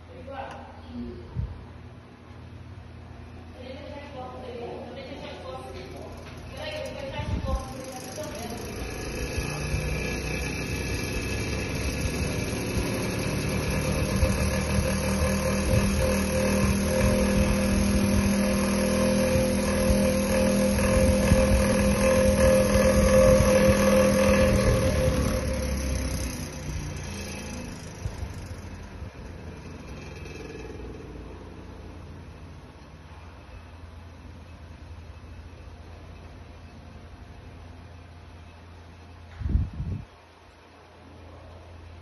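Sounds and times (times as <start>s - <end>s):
desk fan running: 0.0s - 42.0s.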